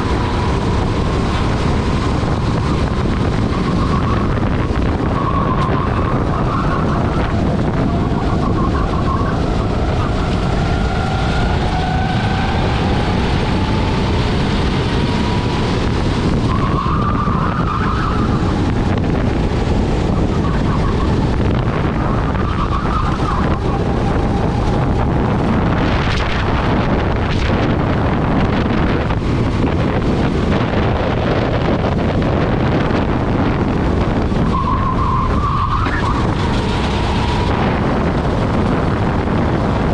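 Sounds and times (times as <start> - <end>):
wind on microphone: 0.0 - 39.9
kart engine running hard: 7.0 - 34.4
tyres squealing: 34.4 - 37.9.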